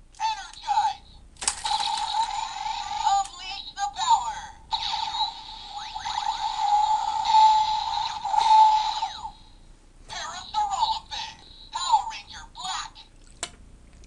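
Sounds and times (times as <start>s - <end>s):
toy electronic music and effects: 1.6s - 9.5s.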